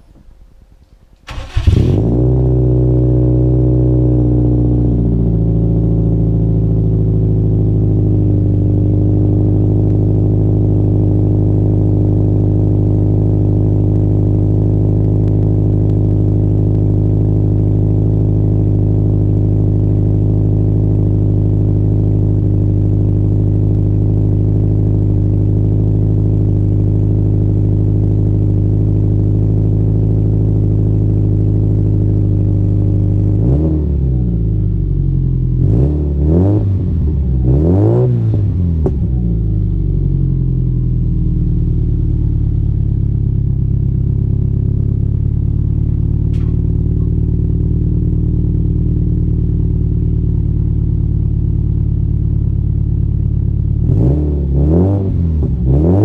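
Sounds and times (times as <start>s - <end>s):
engine revving: 1.3s - 3.9s, 33.4s - 34.4s, 35.6s - 39.2s, 53.8s - 56.0s
car engine idling: 36.6s - 54.1s.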